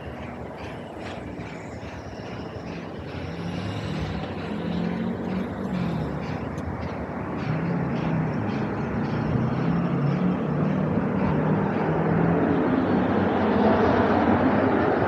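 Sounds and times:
passing vehicle rumble: 0:00.0 - 0:15.0.

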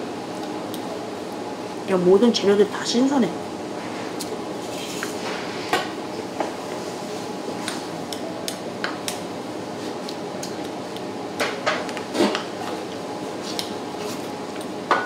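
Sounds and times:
steady background hum: 0:00.0 - 0:15.0.

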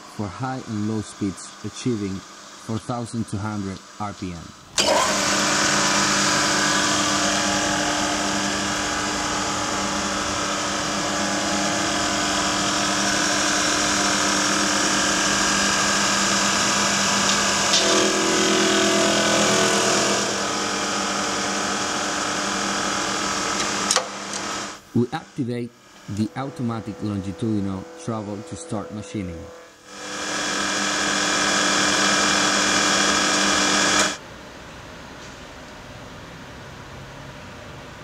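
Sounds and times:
lower machine tone: 0:00.0 - 0:34.2
milling machine whirring: 0:04.8 - 0:34.2.

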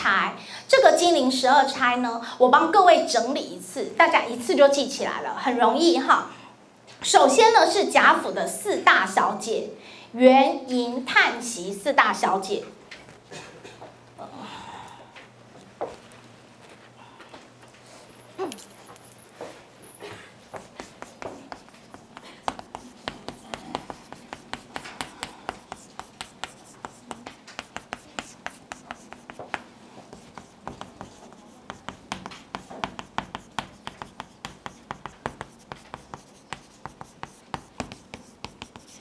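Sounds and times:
chalk tapping and scraping: 0:20.5 - 0:39.0.

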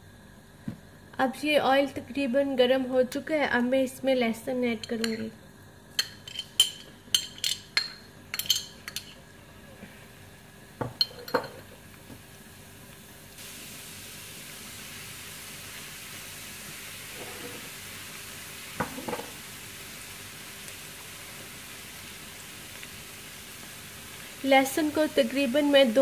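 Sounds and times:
garlic sizzling in hot oil: 0:10.1 - 0:26.0.

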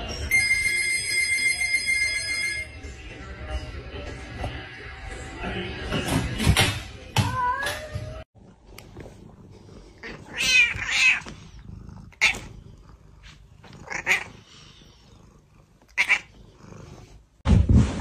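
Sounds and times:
cat meowing: 0:10.1 - 0:11.3, 0:13.8 - 0:14.4, 0:15.9 - 0:16.4.

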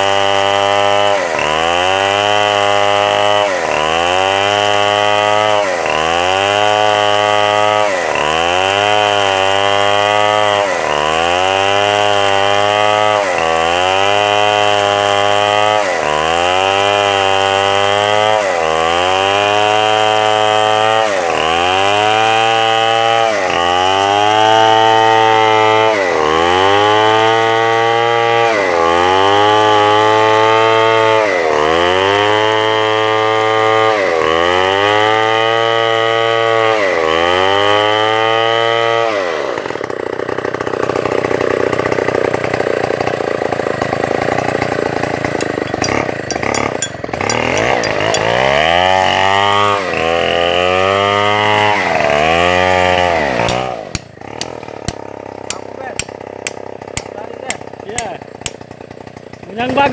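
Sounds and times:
chainsaw engine revving: 0:00.0 - 0:59.9
sharp knocks: 0:45.4 - 0:48.4.

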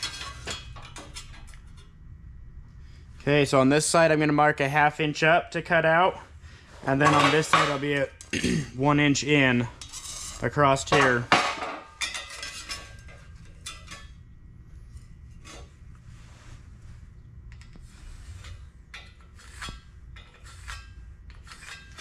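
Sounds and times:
light metal clinks and scrapes: 0:12.0 - 0:14.2, 0:17.5 - 0:22.0.

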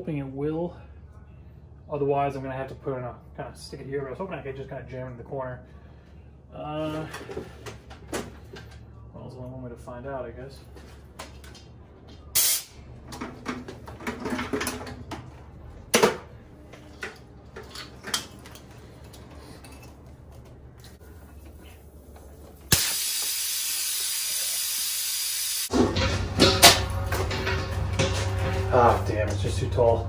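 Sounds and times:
compressed air hissing: 0:12.4 - 0:12.8, 0:22.7 - 0:25.7.

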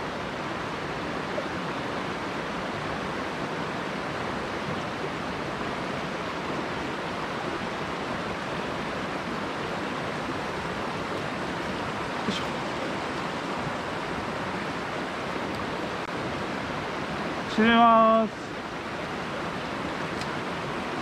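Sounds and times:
mountain stream rushing: 0:00.0 - 0:21.0.

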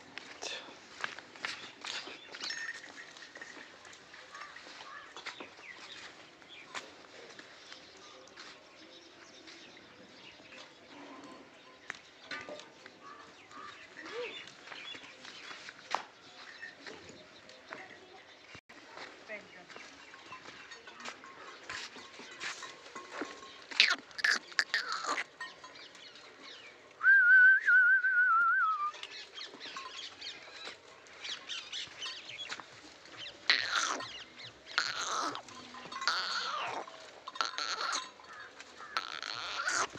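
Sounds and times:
birds chirping: 0:00.0 - 0:39.9.

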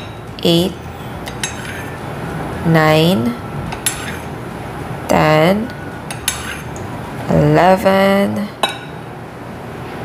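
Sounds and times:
metal spoon clinking: 0:01.3 - 0:01.8.

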